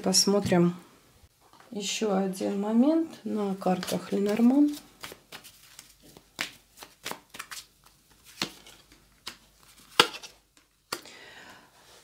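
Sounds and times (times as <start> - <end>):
playing cards snapping and slapping: 4.7 - 11.1.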